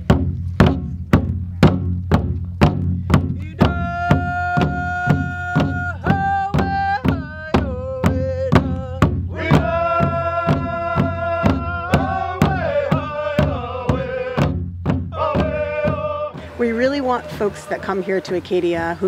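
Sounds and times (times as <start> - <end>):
large drum beat: 0.0 - 19.0
group singing long notes: 3.6 - 18.1.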